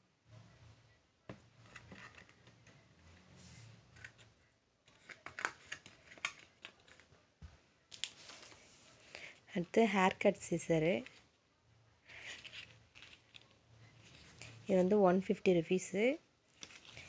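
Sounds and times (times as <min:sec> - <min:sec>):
plastic containers rustling: 0:12.1 - 0:14.8.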